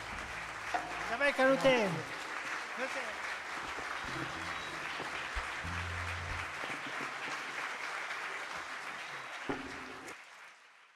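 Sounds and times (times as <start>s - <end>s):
low sustained music notes: 0.0s - 1.6s, 4.0s - 7.1s
audience applauding: 0.0s - 10.9s.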